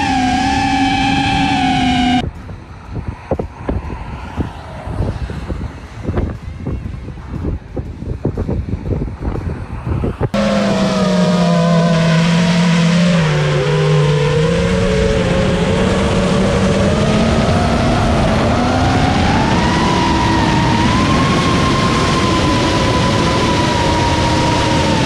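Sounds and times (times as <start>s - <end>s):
drone motors whining: 0.0s - 2.3s, 10.4s - 25.0s
rush of wind: 0.0s - 11.4s, 12.2s - 25.0s.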